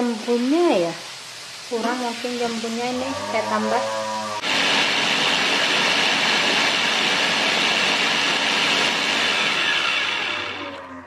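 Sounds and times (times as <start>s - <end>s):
blender motor whir: 4.4s - 11.0s.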